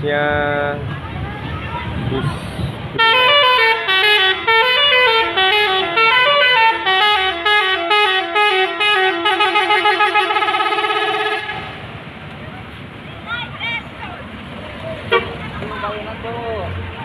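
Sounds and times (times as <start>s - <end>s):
bus musical horn melody: 3.0s - 11.9s, 15.1s - 15.4s.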